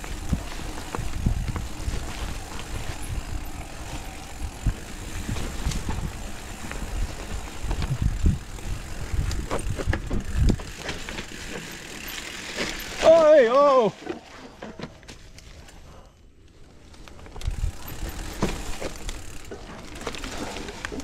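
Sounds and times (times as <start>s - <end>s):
bike clicks and rattles: 0.0s - 21.0s
bike tyres over dirt: 0.0s - 21.0s.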